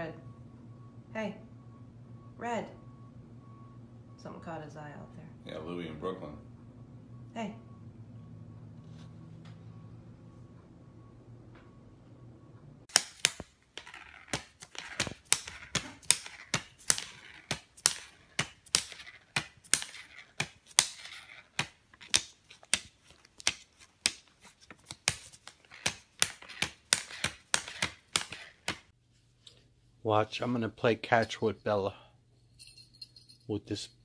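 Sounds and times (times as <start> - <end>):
plastic banknotes crackling: 12.9 - 28.9.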